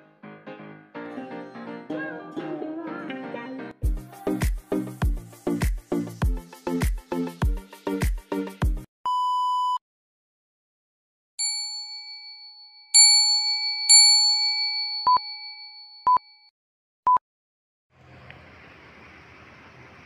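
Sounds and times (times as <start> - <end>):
short countdown beeps: 9.1 - 9.8
test-tone beep: 9.1 - 9.8
bell-like notification dings: 11.4 - 16.5.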